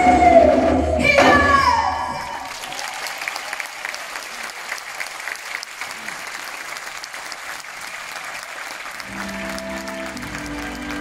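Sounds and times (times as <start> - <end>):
audience applauding: 2.4 - 11.0
music with long held notes: 9.0 - 11.0.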